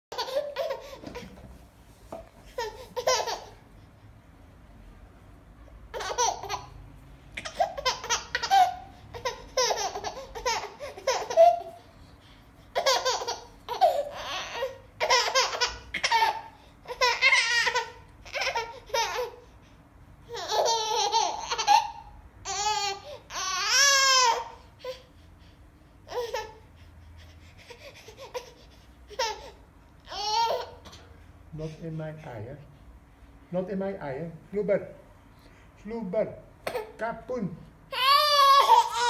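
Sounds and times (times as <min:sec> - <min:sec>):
baby giggling: 0:00.1 - 0:01.4, 0:02.5 - 0:03.6, 0:05.9 - 0:06.8, 0:07.4 - 0:11.8, 0:12.7 - 0:19.4, 0:20.3 - 0:25.0, 0:27.6 - 0:31.1
baby squealing: 0:07.4 - 0:11.8, 0:12.8 - 0:19.4, 0:20.3 - 0:25.0, 0:28.1 - 0:31.1, 0:37.9 - 0:39.0.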